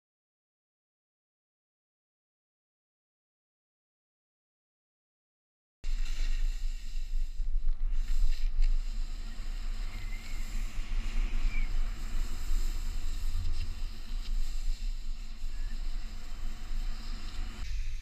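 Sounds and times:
snowboard sliding over snow: 5.9s - 18.0s.

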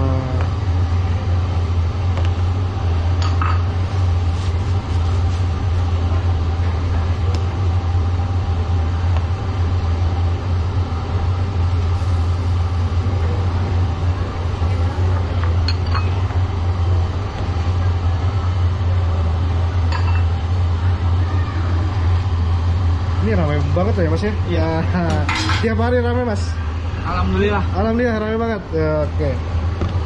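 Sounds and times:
gas burner roar: 0.0s - 30.0s.

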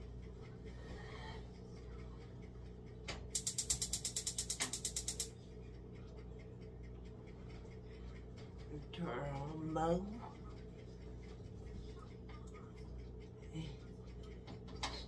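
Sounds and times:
burner igniter clicking: 3.1s - 5.4s.

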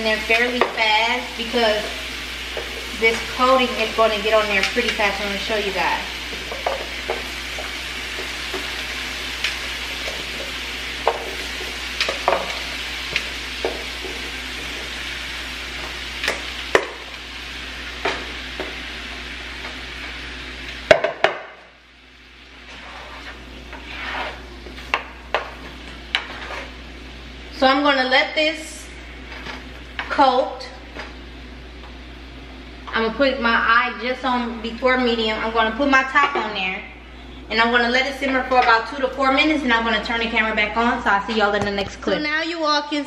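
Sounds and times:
fruit sizzling in a skillet: 0.0s - 32.0s
pieces knocking in a pan: 6.2s - 15.0s, 15.8s - 17.1s, 20.9s - 21.6s.

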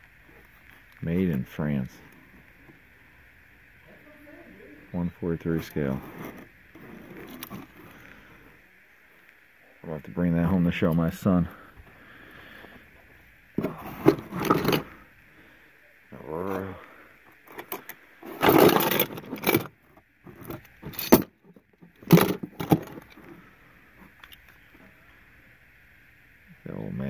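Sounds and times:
metal toy cars clattering: 13.6s - 14.9s, 17.5s - 19.7s, 20.3s - 21.3s, 22.0s - 23.2s.

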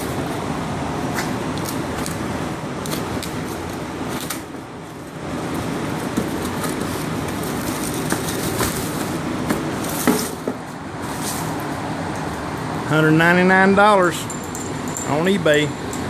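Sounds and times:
cardboard and paper rustling: 5.9s - 10.4s.

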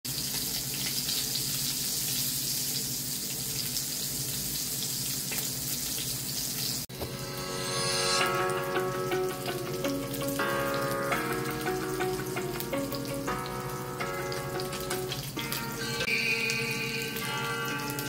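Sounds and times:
sausages sizzling in oil: 0.1s - 18.0s
music: 6.9s - 18.0s.

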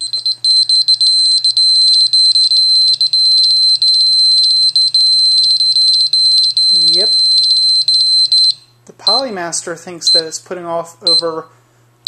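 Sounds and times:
high-pitched pulsing alarm tone: 0.0s - 9.3s.

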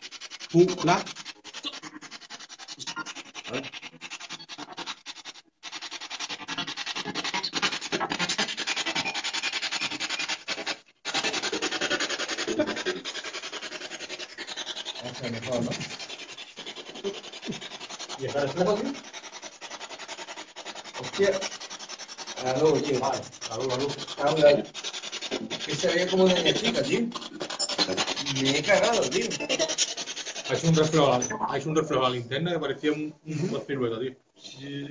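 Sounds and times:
voice-like snatches: 11.1s - 16.0s, 22.2s - 31.3s.

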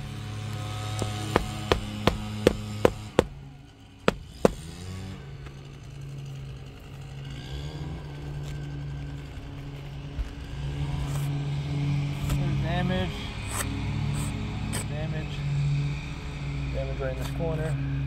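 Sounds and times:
hammer knocking on roof shingles: 1.0s - 3.4s, 4.1s - 4.8s.

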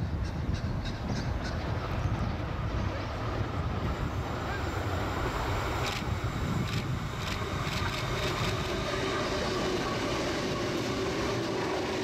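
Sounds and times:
train hiss: 3.1s - 12.0s.

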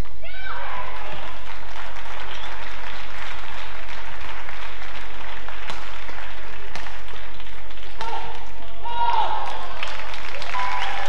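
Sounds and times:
crowd applauding: 0.7s - 11.0s
racket hitting shuttlecock: 6.7s - 7.1s.

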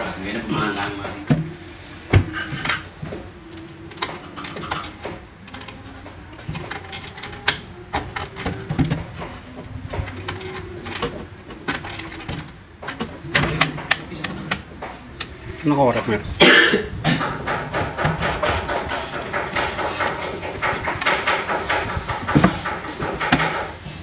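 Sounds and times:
cabinet drawer clicks and knocks: 17.1s - 23.9s.

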